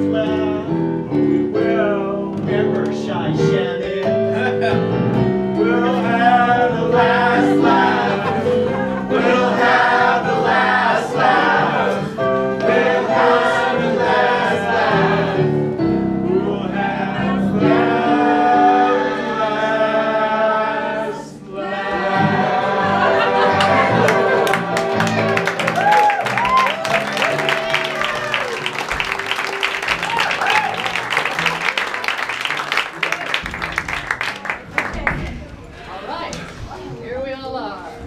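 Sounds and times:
keyboard accompaniment: 0:00.0 - 0:34.8
voices singing: 0:05.6 - 0:25.4.

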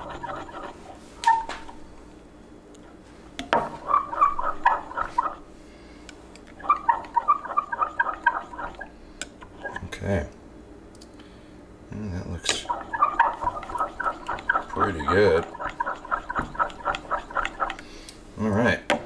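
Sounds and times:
metal spatula scraping glass: 0:00.0 - 0:00.9.

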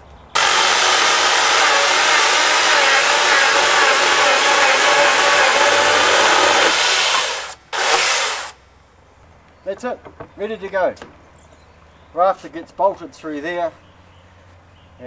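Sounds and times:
chainsaw cutting wood: 0:00.4 - 0:08.6.

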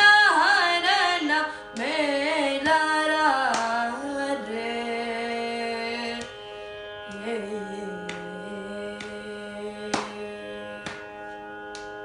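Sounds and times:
boy singing: 0:07.1 - 0:10.9.

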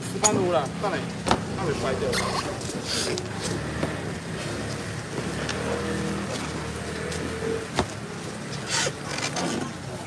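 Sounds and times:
voices talking: 0:00.2 - 0:07.7.

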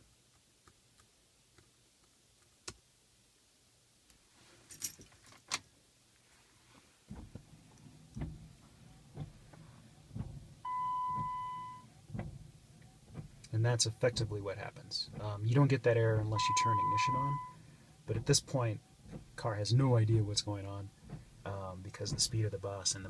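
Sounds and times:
rustling of person moving: 0:04.0 - 0:16.3, 0:17.5 - 0:23.0
keys jingling: 0:04.6 - 0:05.6
low thuds: 0:07.0 - 0:23.0.

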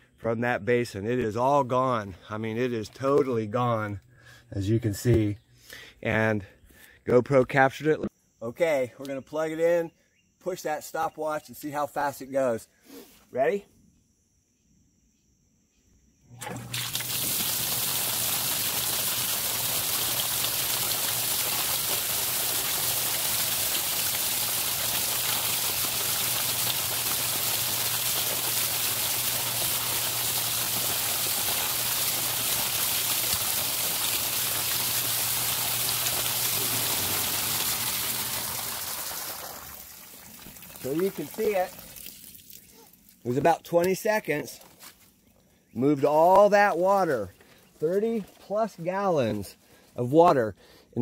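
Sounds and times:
sump pump motor hum: 0:16.3 - 0:42.2
water gushing from pipe: 0:16.4 - 0:42.6.

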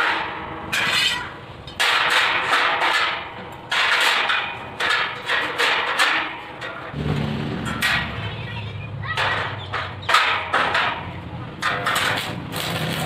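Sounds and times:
welding arc crackling and hissing: 0:12.2 - 0:13.0.

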